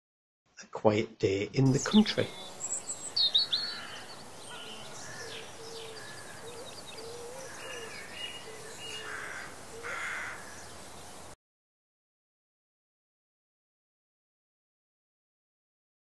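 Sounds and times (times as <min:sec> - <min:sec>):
birds chirping: 0:01.7 - 0:11.4
low cooing: 0:03.5 - 0:10.7.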